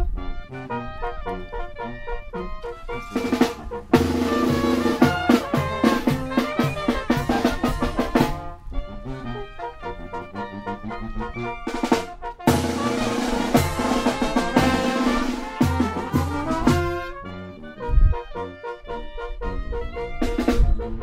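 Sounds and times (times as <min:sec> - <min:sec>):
music led by drum kit: 0:02.6 - 0:08.6, 0:11.6 - 0:17.2, 0:20.1 - 0:21.0
snare and bass drum hits: 0:03.0 - 0:08.5, 0:11.8 - 0:17.2.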